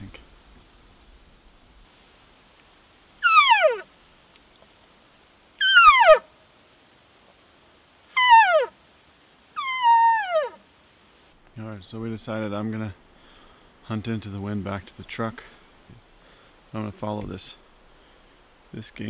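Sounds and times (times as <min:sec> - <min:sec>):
elk call mewing through tube: 0:03.2 - 0:03.9, 0:05.6 - 0:06.3, 0:08.1 - 0:08.8, 0:09.6 - 0:10.6.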